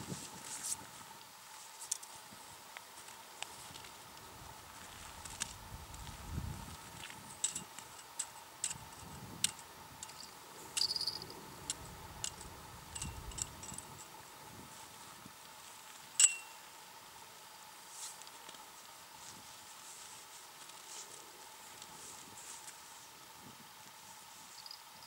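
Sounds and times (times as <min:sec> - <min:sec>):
faint steady hum: 0:00.0 - 0:25.0
ringing click: 0:16.2 - 0:16.6.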